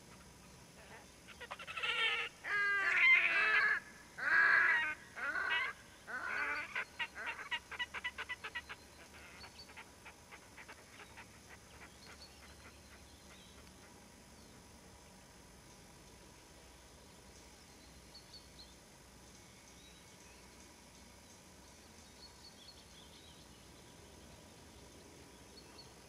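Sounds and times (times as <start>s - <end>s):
grebes wailing calls: 0.9s - 12.5s.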